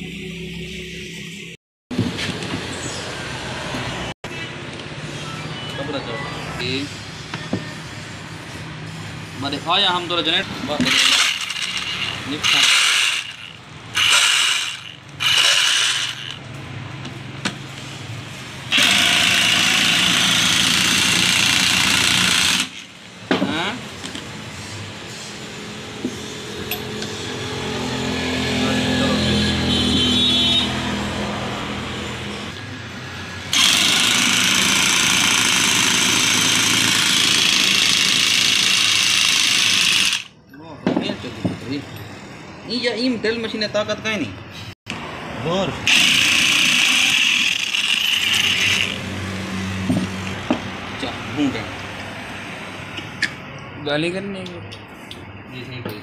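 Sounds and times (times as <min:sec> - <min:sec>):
electric impact wrench running: 0:10.7 - 0:16.5, 0:18.7 - 0:23.0, 0:33.5 - 0:40.4, 0:45.8 - 0:50.4
impact wrench rattling: 0:10.8 - 0:16.4.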